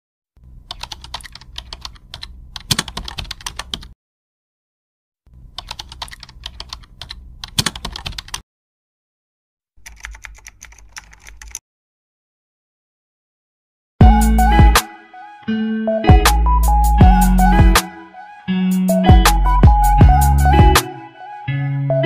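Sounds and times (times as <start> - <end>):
rapid keyboard key clicks: 0.7 - 3.9, 5.6 - 8.4, 9.8 - 11.6.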